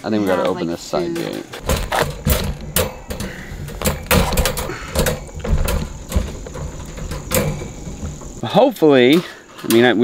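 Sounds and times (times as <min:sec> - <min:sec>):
metal wire panels rattling: 0:00.1 - 0:10.0
sharp knocks: 0:01.6 - 0:08.4.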